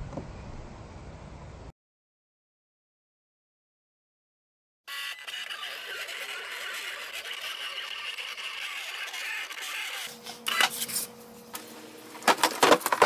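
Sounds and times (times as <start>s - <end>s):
motor buzzing tone: 4.9s - 10.8s
plotter whirring: 4.9s - 10.8s.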